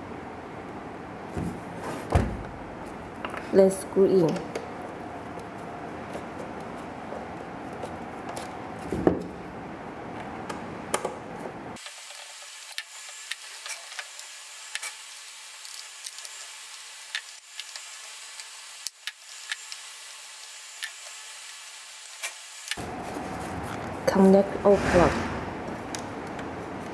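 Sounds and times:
steady hiss: 11.8s - 23.3s
low room rumble: 22.8s - 26.9s.

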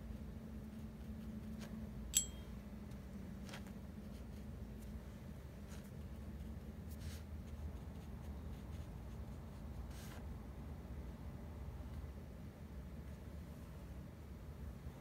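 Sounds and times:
low steady hum: 0.0s - 15.0s
paintbrush strokes on paper: 3.4s - 10.4s.

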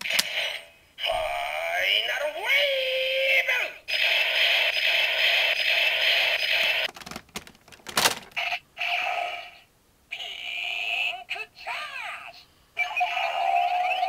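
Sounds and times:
toy cannon electronic sounds: 3.9s - 6.9s
plastic clicks: 6.9s - 8.4s.

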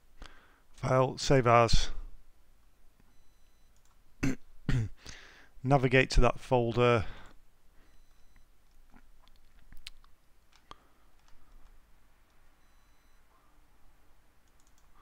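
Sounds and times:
low room hum: 0.0s - 15.0s
computer mouse clicks: 9.2s - 12.4s, 14.4s - 15.0s.

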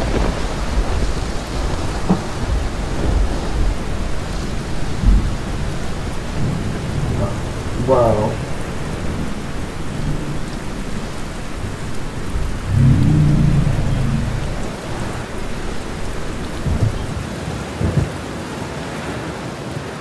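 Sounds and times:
thunder rumble: 0.0s - 18.2s
heavy rain: 0.0s - 20.0s
low thumps: 1.7s - 17.2s.

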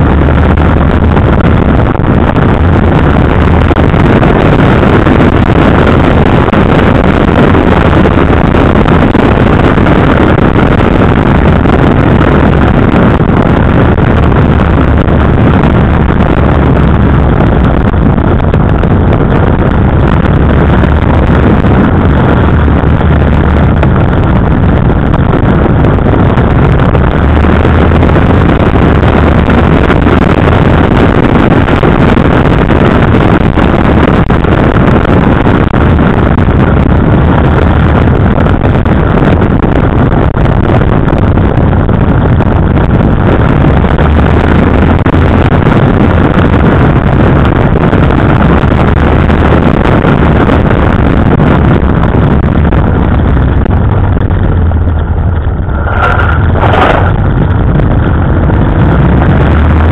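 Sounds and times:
motorcycle engine running: 0.0s - 59.9s
wind buffeting microphone: 0.0s - 59.9s.

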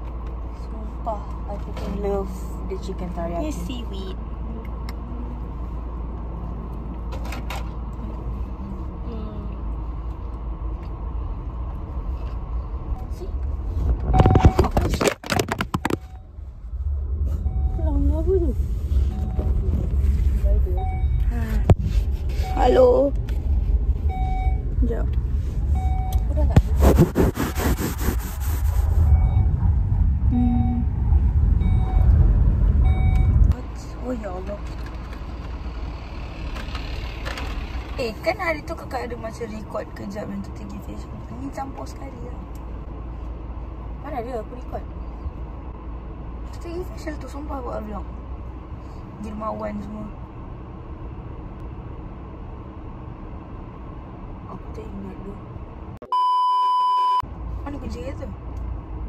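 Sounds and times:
car cabin engine rumble: 0.0s - 35.7s
short electronic beeps: 14.1s - 14.8s, 30.3s - 30.9s, 31.6s - 32.1s, 56.0s - 57.2s.

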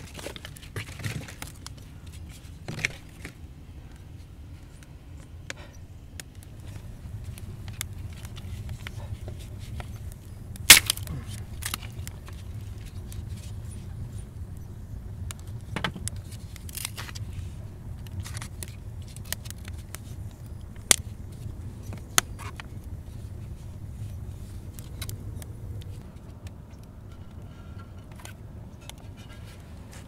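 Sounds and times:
fire crackles: 0.0s - 30.0s
wood fire rumbling: 0.0s - 30.0s
sharp cracks: 5.5s - 14.2s, 15.2s - 22.8s.

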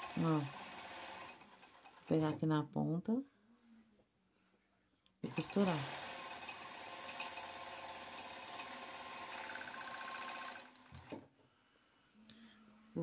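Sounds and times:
sewing machine running: 0.0s - 2.3s, 5.3s - 11.2s.

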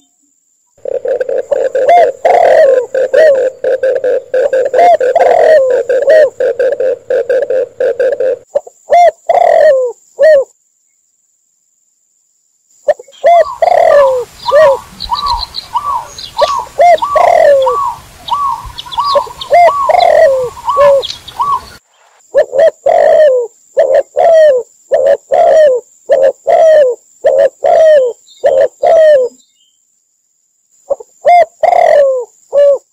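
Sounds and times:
faint hiss: 0.0s - 32.9s
doves cooing: 0.8s - 10.5s, 12.9s - 29.4s, 30.9s - 32.9s
small high chirps: 12.8s - 22.2s.

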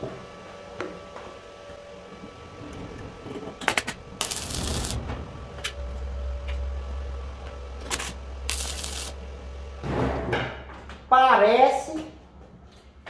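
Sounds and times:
low steady hum: 0.0s - 13.0s
crackling hiss of welding arc: 3.7s - 5.0s, 7.9s - 9.2s.

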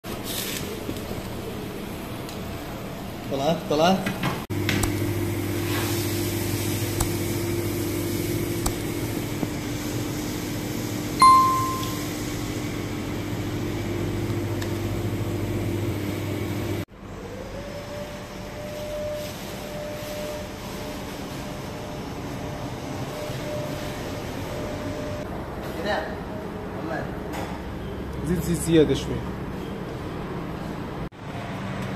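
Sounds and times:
kitchen machine hum: 4.2s - 17.4s
bell-like ding: 11.2s - 12.2s.

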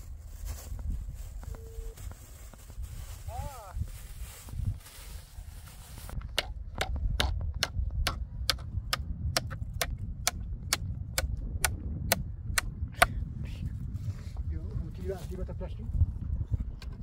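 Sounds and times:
low rumble: 3.8s - 17.0s.

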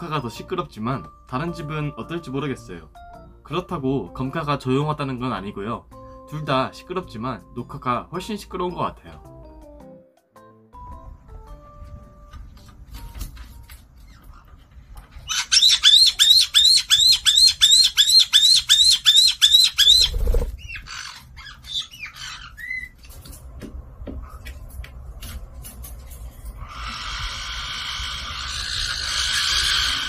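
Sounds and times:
parrot high-pitched calls: 15.2s - 23.0s, 26.6s - 30.0s
harsh parrot alarm call: 15.3s - 23.0s, 26.6s - 30.0s.

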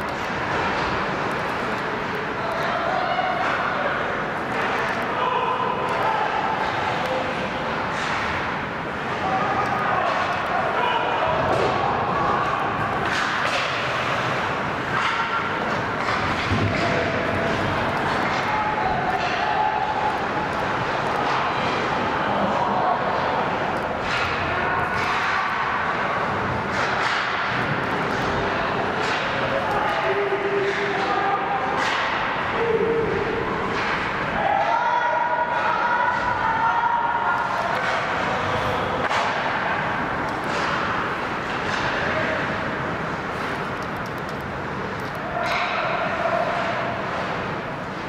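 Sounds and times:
arena crowd din: 0.0s - 48.0s
hockey sticks and puck clacking: 0.0s - 48.0s
skate and rink noise: 0.0s - 48.0s.

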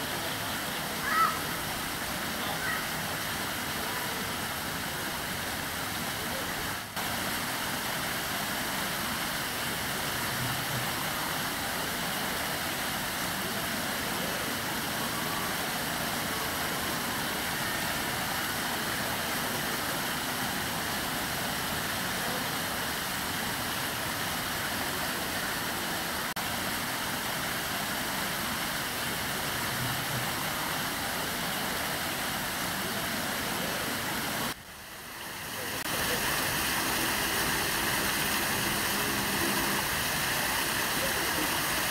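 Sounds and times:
waterfall splashing over rocks: 0.0s - 41.9s.

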